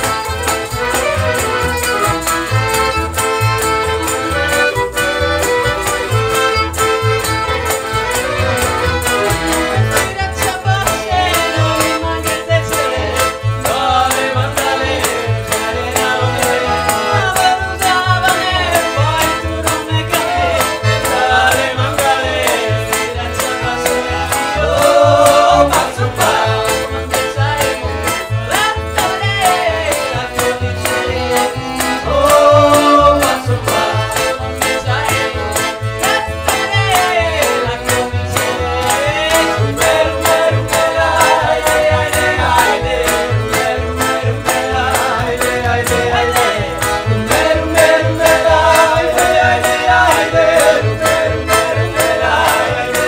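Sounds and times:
clarinet: 0:00.0 - 0:10.3
accordion: 0:00.0 - 0:53.0
double bass beat: 0:00.0 - 0:53.0
hand percussion: 0:00.0 - 0:53.0
violin: 0:00.0 - 0:53.0
voices: 0:00.0 - 0:53.0.

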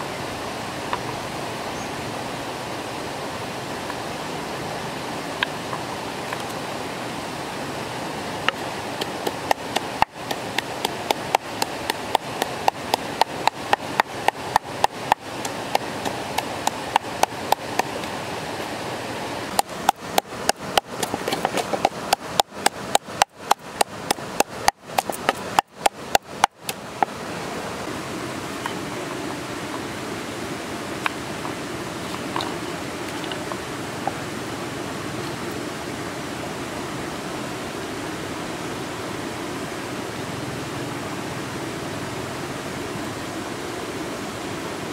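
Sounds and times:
stream rushing: 0:00.0 - 0:44.9
wooden pestle pounding in mortar: 0:09.0 - 0:17.9, 0:19.6 - 0:26.6.

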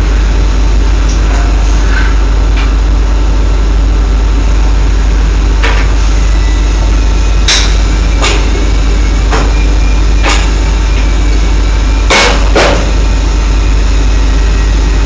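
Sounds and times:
drilling rig machinery drone: 0:00.0 - 0:15.0.

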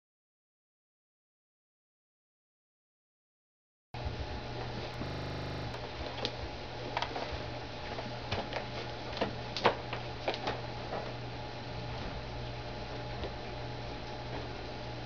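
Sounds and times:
electrical hum: 0:04.7 - 0:05.8
short buzz: 0:05.0 - 0:05.8.

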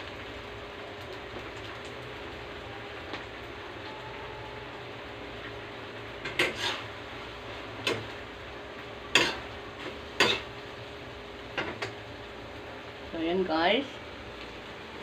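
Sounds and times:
metal spatula scraping frying pan: 0:06.2 - 0:07.0, 0:09.1 - 0:10.5.

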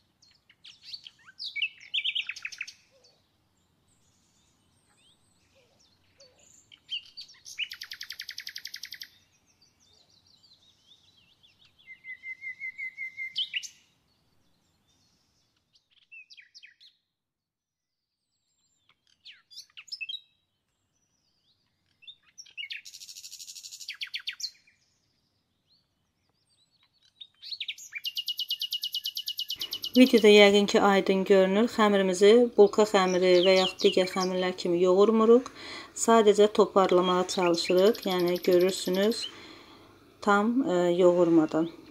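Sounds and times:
songbird singing with fast trills: 0:00.0 - 0:17.1, 0:18.2 - 0:41.9.

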